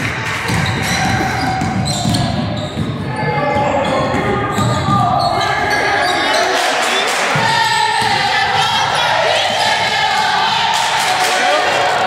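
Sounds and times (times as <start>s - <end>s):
basketball bouncing on court: 0.0s - 5.8s, 7.3s - 10.8s
echoing voices: 0.0s - 12.0s.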